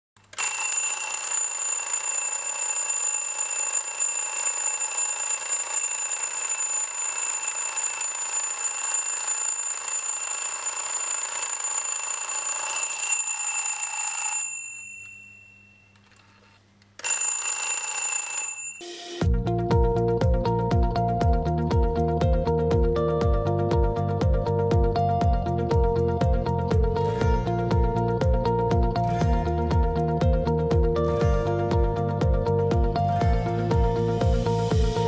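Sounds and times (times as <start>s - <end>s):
alarm clock bells ringing: 0.4s - 15.9s, 17.0s - 19.2s.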